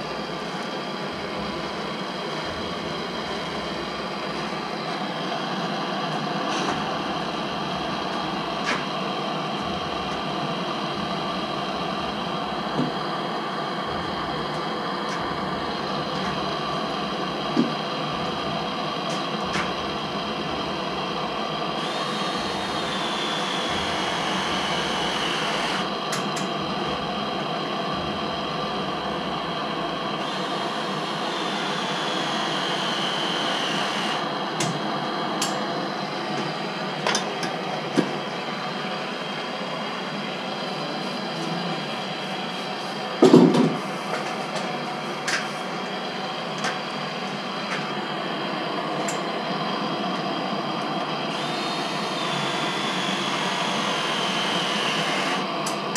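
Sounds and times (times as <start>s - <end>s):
gas torch hissing: 21.6s - 26.6s.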